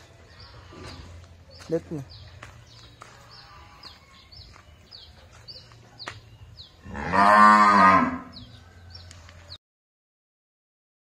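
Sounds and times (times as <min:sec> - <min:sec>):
cow mooing: 0:06.8 - 0:08.4.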